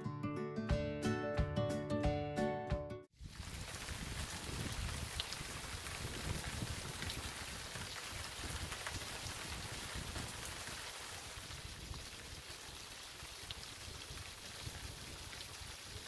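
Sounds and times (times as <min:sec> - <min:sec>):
steady rain falling: 0:03.2 - 0:16.0
raindrops ticking: 0:03.3 - 0:11.1.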